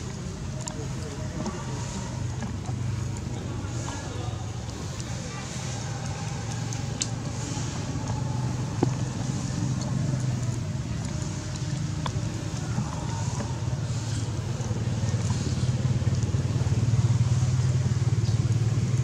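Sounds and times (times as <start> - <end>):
motor engine humming: 0.0 - 19.0.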